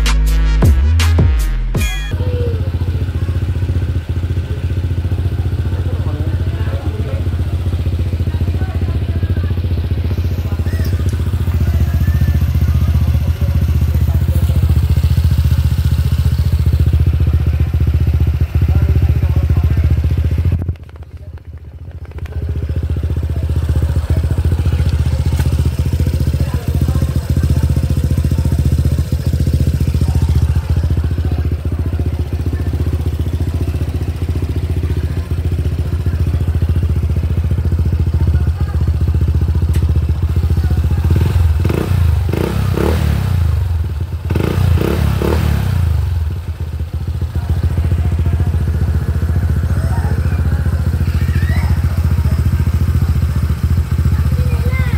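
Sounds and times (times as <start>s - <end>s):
scooter engine idling: 1.8s - 54.9s.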